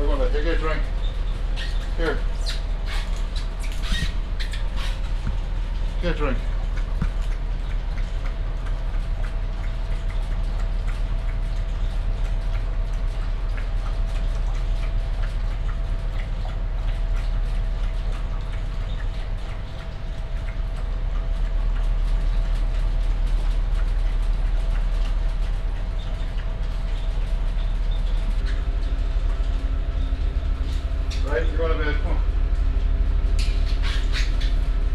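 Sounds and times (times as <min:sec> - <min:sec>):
ship engines rumbling: 0:00.0 - 0:11.4, 0:22.9 - 0:34.9
dog lapping water: 0:00.0 - 0:34.9.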